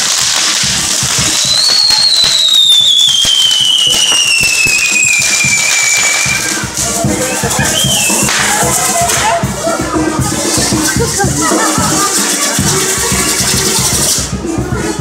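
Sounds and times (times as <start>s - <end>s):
whistling firework: 0.0s - 9.4s
fireworks crackling and popping: 0.0s - 15.0s.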